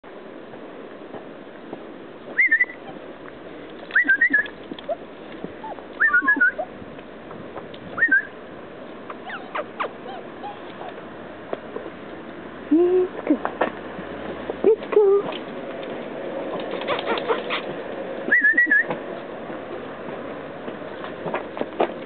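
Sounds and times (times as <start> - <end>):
high-pitched chirping calls: 2.4 - 3.0, 3.9 - 5.0, 5.6 - 6.7.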